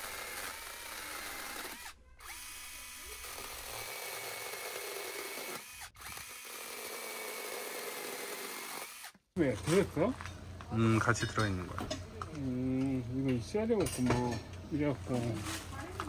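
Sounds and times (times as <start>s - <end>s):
electric chainsaw cutting wood: 0.0s - 9.2s.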